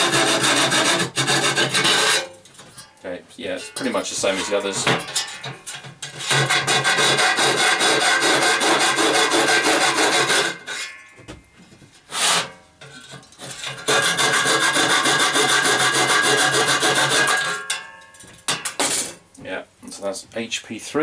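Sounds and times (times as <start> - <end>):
handheld cutting tool rasping: 0.0 - 2.3, 6.1 - 10.9, 12.1 - 17.6.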